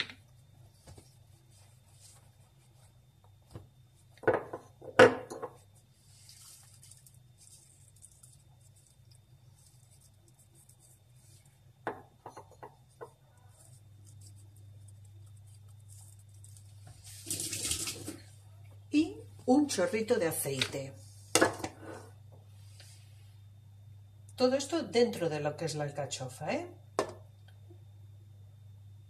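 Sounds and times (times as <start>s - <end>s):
low steady hum: 0.0s - 29.0s
sharp knocks on countertop: 27.0s - 27.2s.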